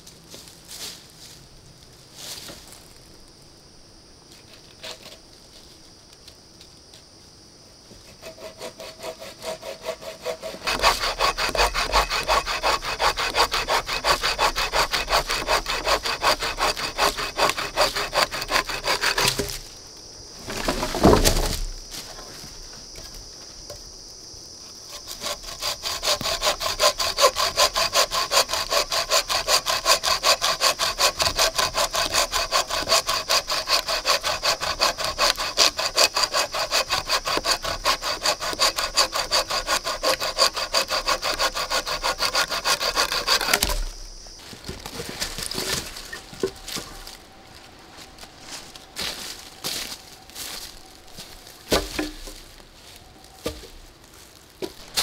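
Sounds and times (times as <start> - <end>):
saw rasping through log: 8.1 - 19.5, 24.9 - 44.0.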